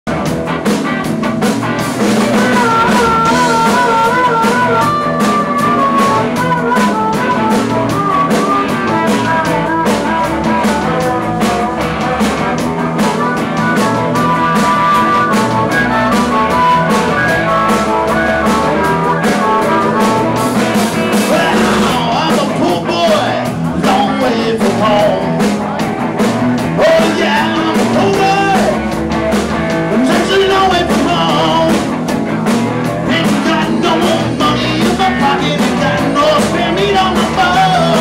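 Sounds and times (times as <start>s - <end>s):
blues-rock band playing: 0.1s - 38.0s
harmonica lead: 0.1s - 38.0s
person singing: 2.3s - 12.3s, 21.1s - 25.6s, 26.7s - 29.0s, 29.9s - 31.9s, 33.0s - 38.0s.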